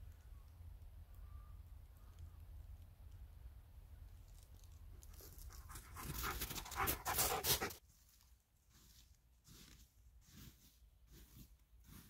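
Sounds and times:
dog panting rapidly: 5.7 - 7.8.

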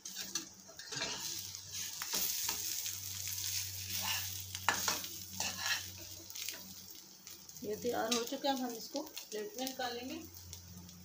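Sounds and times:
metal spatula scraping a pan: 0.0 - 6.7
potato patty sizzling in oil: 0.0 - 11.0.

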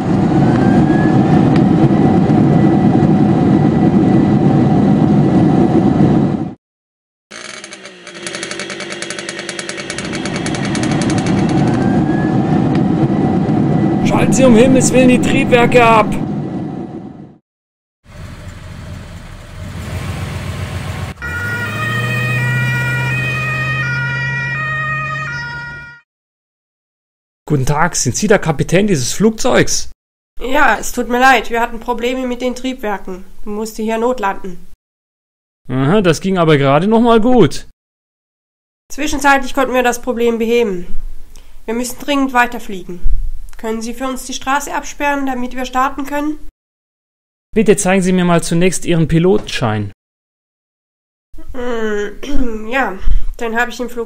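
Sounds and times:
jet engines rumbling and whining: 0.0 - 6.6, 7.8 - 17.4, 18.1 - 24.4
two-tone police siren: 0.3 - 1.5, 10.4 - 12.7, 21.1 - 26.1.

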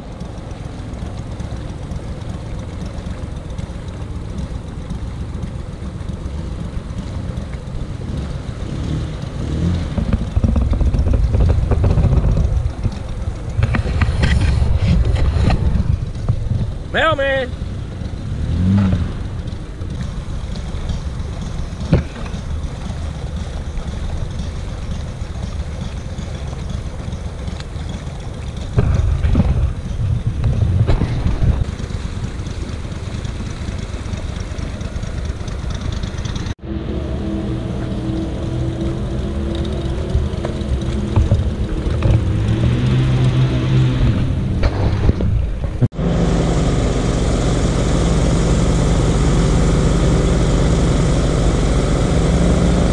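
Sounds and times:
boat engine running: 0.0 - 52.9
wind on microphone: 10.0 - 17.0, 28.7 - 32.1.

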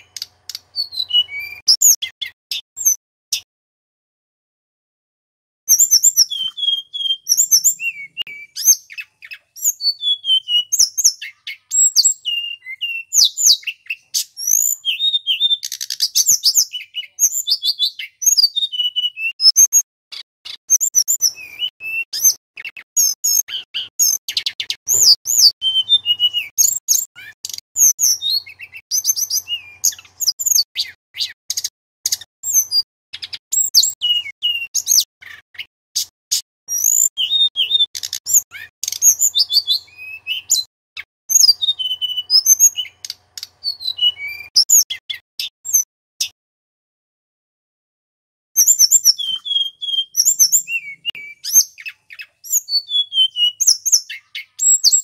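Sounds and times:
bird singing whistles and trills: 0.0 - 3.5, 5.7 - 46.4, 48.6 - 55.0.

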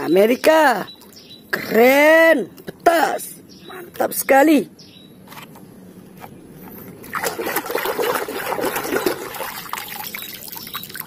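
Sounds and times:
water splashing: 7.0 - 11.0.

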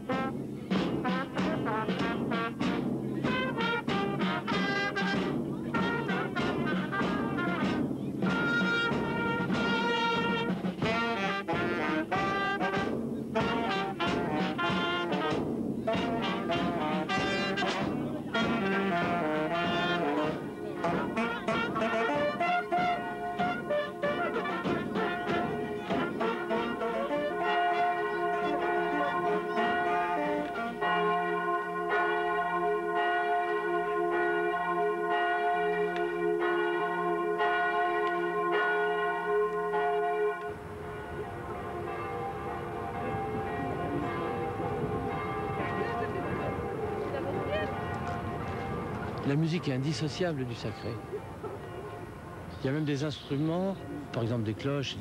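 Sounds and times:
marching brass band playing: 0.0 - 55.0
large church bell ringing: 3.0 - 55.0.

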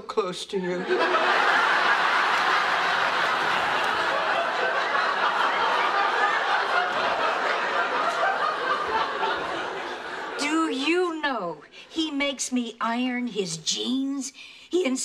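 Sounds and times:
studio audience laughing: 0.7 - 11.2.

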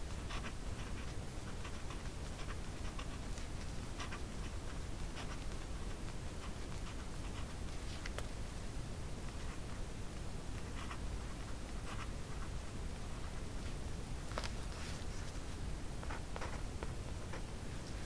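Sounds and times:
low background hum: 0.0 - 18.0
pen scratching on paper: 0.1 - 8.1, 10.7 - 12.5.

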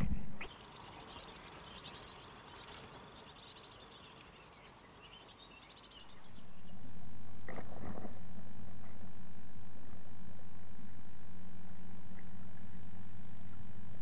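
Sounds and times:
nestlings cheeping: 0.0 - 6.8
steady low hum: 0.0 - 14.0.

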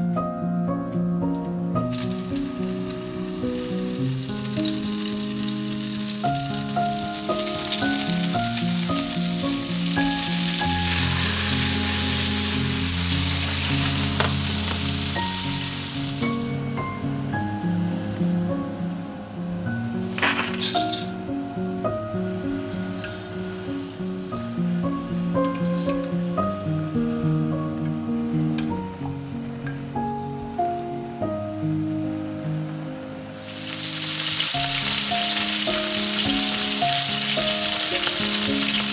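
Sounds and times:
background music: 0.0 - 38.9
meatballs sizzling in oil: 1.9 - 18.3, 33.4 - 38.9.

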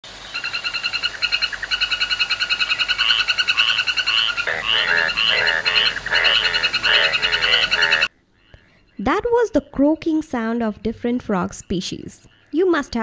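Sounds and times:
frogs pulsing trill: 0.2 - 9.7
low frog croaks: 0.3 - 9.1.

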